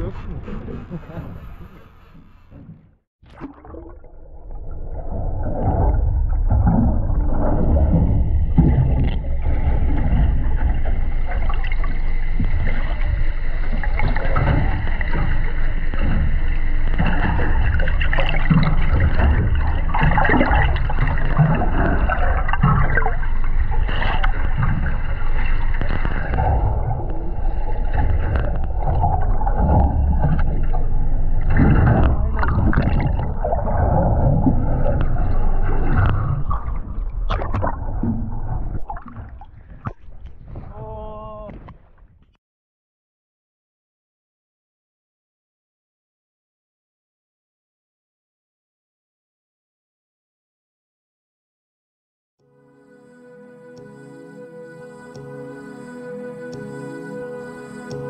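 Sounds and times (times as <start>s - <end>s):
muffled underwater rumbling: 0.0s - 42.4s.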